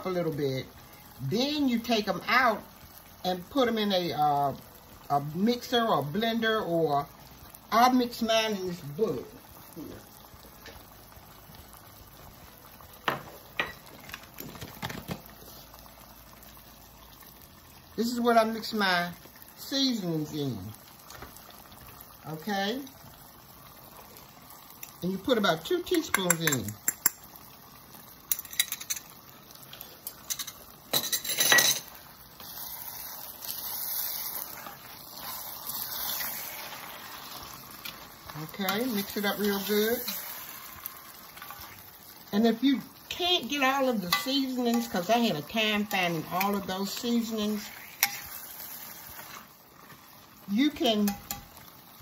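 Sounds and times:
food sizzling in a pan: 0.0s - 52.0s
pot simmering on stove: 0.0s - 52.0s
metal fork scraping a pan: 47.6s - 49.4s.

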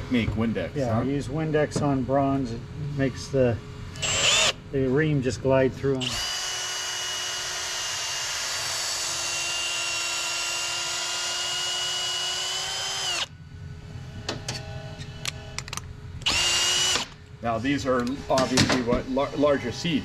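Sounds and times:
cordless drill whining: 4.0s - 4.6s, 6.0s - 13.3s, 16.2s - 17.2s.

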